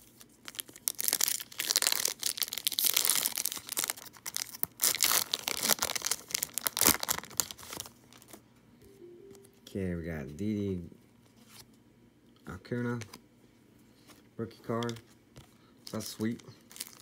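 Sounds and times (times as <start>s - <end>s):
foil wrappers torn and crinkled: 0.0s - 8.4s, 15.9s - 17.0s.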